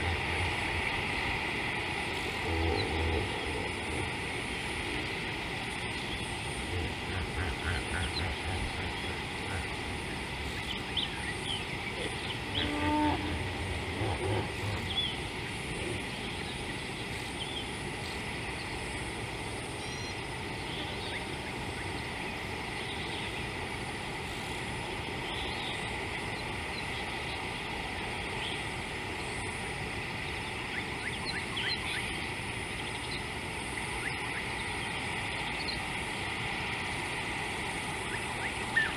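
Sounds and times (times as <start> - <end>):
elephants rumbling: 0.0 - 18.2
steady outdoor hiss: 0.0 - 38.9.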